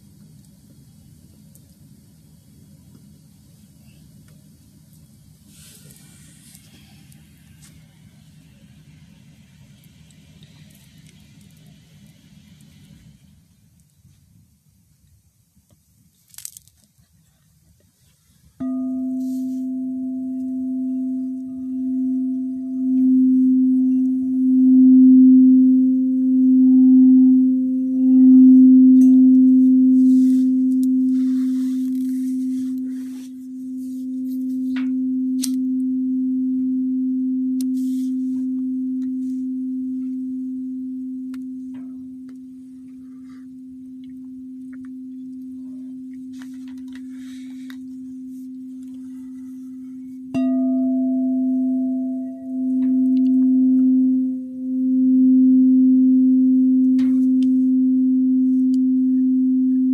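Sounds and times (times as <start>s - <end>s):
singing bowl ringing: 18.6s - 59.9s
singing bowl struck: 18.6s - 59.9s.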